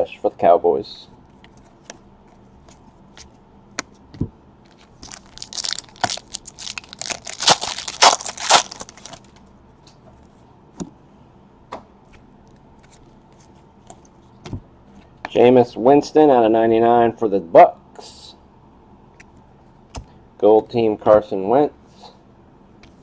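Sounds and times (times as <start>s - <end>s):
foil wrapper tearing and crinkling: 4.7s - 9.4s.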